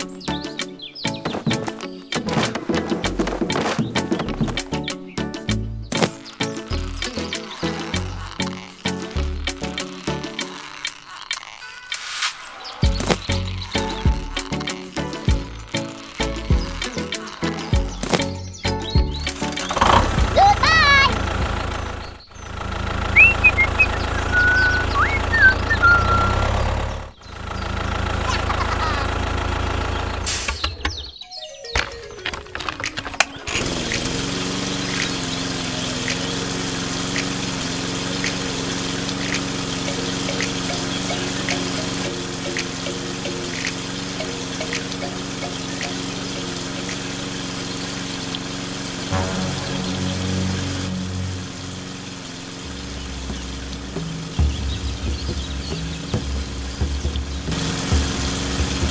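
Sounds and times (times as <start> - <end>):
water spraying on soil: 5.8 - 21.2, 22.4 - 26.6, 30.2 - 30.6, 33.5 - 58.9
electric water pump humming: 6.2 - 11.7, 12.8 - 30.5, 33.3 - 58.9
tractor engine chugging: 15.2 - 31.1, 33.2 - 58.9
whistled chirps: 23.1 - 26.6.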